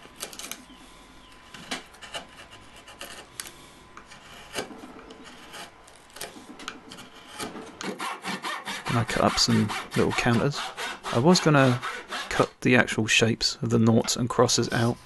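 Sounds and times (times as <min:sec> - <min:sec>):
gouge scraping wood: 0:01.6 - 0:12.5.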